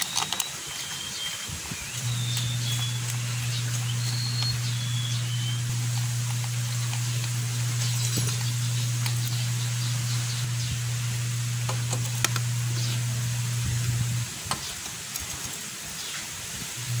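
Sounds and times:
steady low hum: 0:01.6 - 0:14.8, 0:16.6 - 0:17.0.

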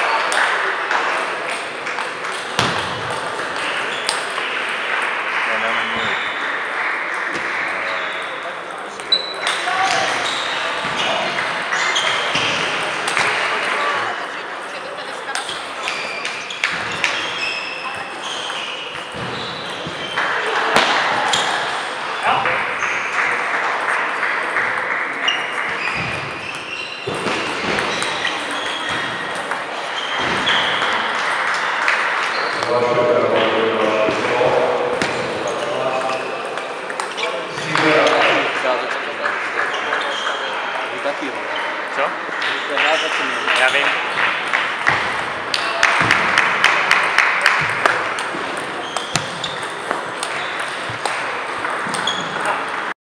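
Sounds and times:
sports hall din: 0:00.0 - 0:53.0
table tennis balls clicking: 0:44.4 - 0:52.9.

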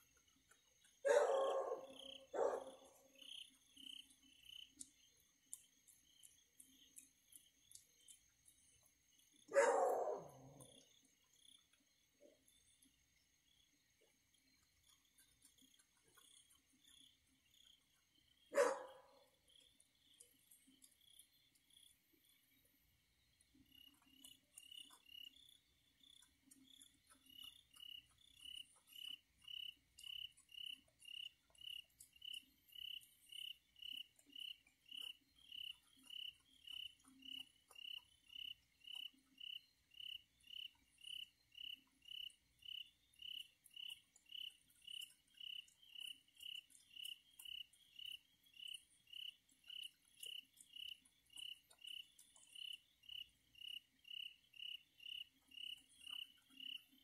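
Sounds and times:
cricket chirping: 0:00.0 - 0:57.0
faint clicks: 0:03.8 - 0:09.0.

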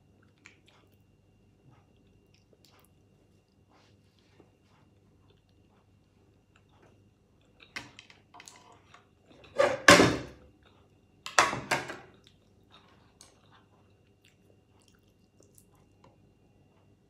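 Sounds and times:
shell clicks and chewing: 0:00.1 - 0:03.6, 0:12.1 - 0:16.9.

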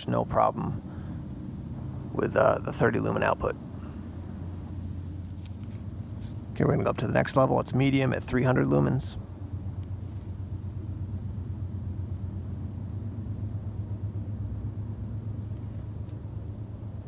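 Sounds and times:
low background rumble: 0:00.0 - 0:17.0.

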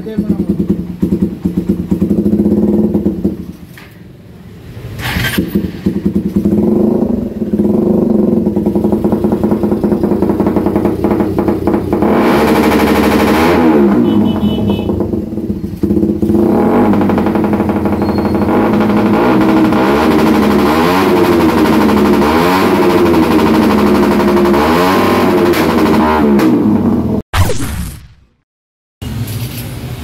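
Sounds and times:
motorcycle engine revving: 0:00.0 - 0:03.8, 0:04.9 - 0:27.2
exhaust backfire bang: 0:05.0 - 0:28.4.

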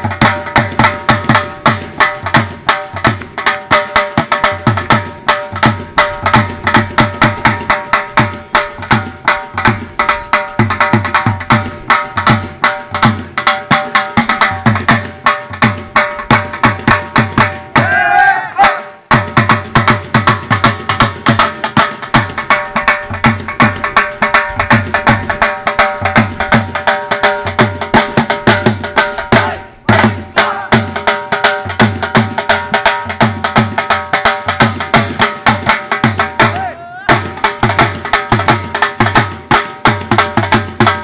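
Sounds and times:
fast dhol drumming: 0:00.0 - 0:41.0
wavering vocal call: 0:17.7 - 0:19.0, 0:29.3 - 0:30.9, 0:36.4 - 0:37.2.

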